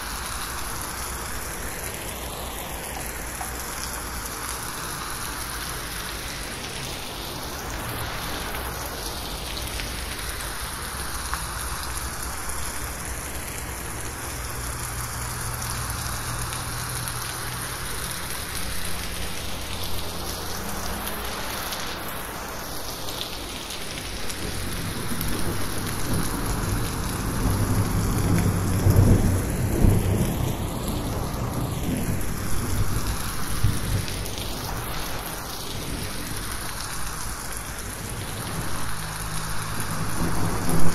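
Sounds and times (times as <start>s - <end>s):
heavy rain on a metal roof: 0.0s - 40.9s
thunder rumbling: 24.4s - 36.4s, 39.6s - 40.9s.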